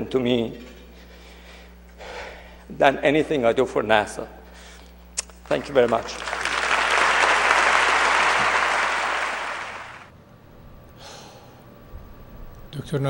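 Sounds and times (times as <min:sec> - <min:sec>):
audience applauding: 0:05.5 - 0:10.1.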